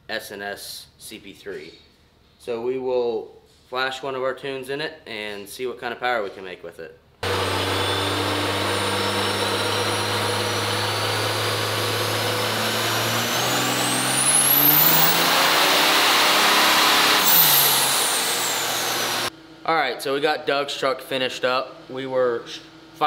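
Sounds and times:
diesel engine revving: 7.2s - 19.3s
turbocharger whistle: 7.2s - 19.3s.

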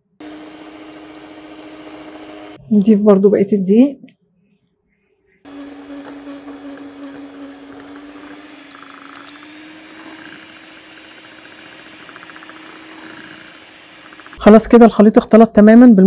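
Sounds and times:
electric hand mixer whirring: 0.0s - 2.6s, 5.5s - 15.0s.

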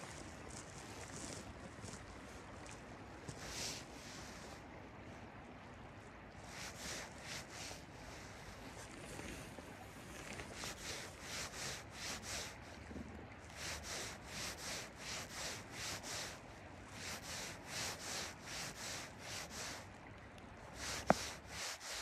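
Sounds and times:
fly line hissing through rod guides: 20.8s - 22.0s.

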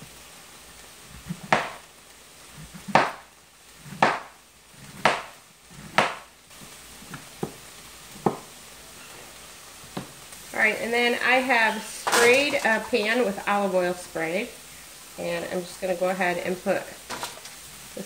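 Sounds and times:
knife chopping on plastic board: 1.5s - 1.8s, 2.9s - 3.2s, 4.0s - 4.3s, 5.0s - 6.3s, 8.2s - 8.5s.

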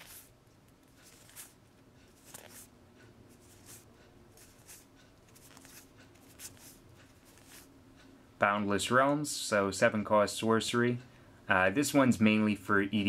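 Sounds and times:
trading cards swishing: 0.0s - 0.3s, 0.9s - 2.7s, 3.3s - 7.7s.

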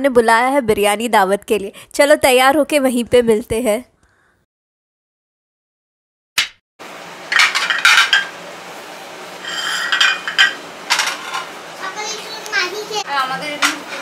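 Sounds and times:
glass plates clinking: 7.3s - 8.4s, 9.4s - 11.5s.

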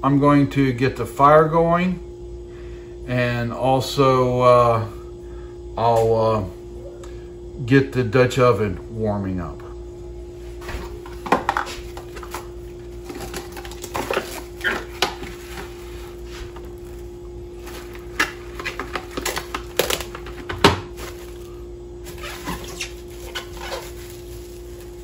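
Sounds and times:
steady hum: 0.0s - 25.0s
cling wrap crinkling: 11.8s - 25.0s
cling wrap tearing: 21.0s - 25.0s.

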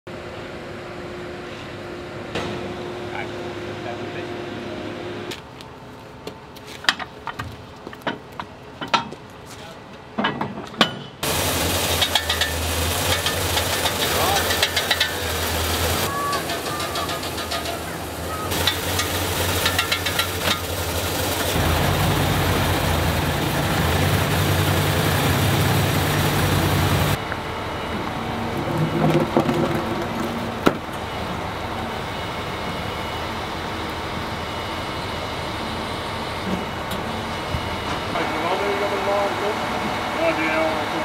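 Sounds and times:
diesel truck engine running: 11.2s - 41.0s.

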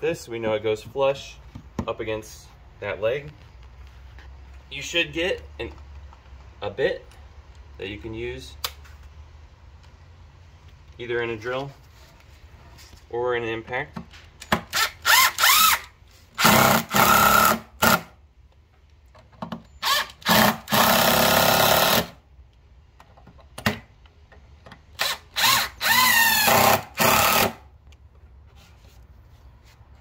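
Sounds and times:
cordless driver driving screws: 14.4s - 18.0s, 24.9s - 27.6s.

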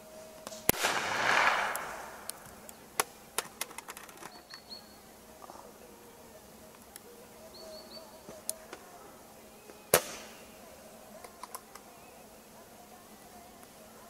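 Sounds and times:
pistol shot with echo: 0.7s - 2.4s.

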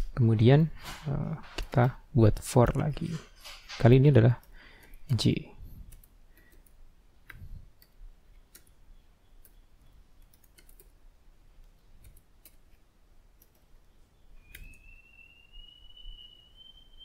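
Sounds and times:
computer keyboard typing: 5.8s - 8.8s, 9.4s - 11.0s, 11.6s - 12.8s.

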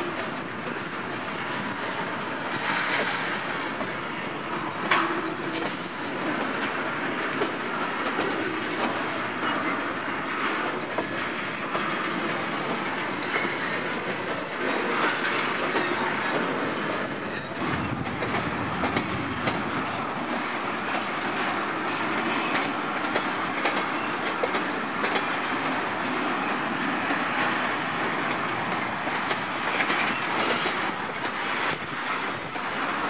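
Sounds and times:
train wheels rumbling on rails: 0.0s - 33.0s
wheels clicking over rail joints: 4.6s - 33.0s
faint wheel squeals: 9.4s - 11.1s, 16.8s - 17.6s, 26.3s - 26.8s.

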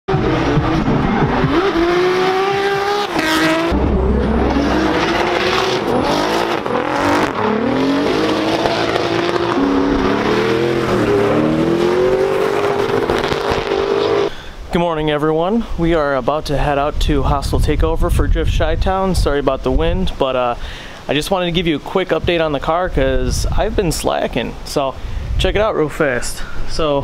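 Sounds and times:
car engines revving hard: 0.1s - 14.3s.

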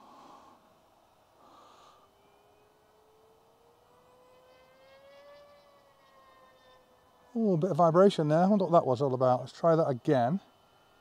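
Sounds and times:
electric motor and propeller whine: 0.0s - 11.0s.

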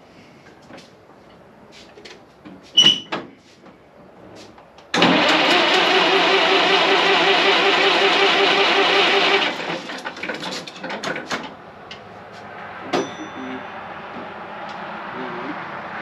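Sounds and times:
engine cranking on starter: 4.9s - 11.5s.

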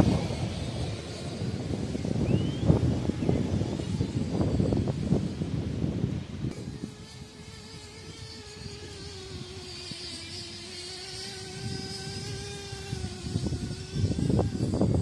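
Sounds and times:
low rumbling noise: 0.0s - 9.7s
distant model engine buzzing: 0.0s - 15.0s.

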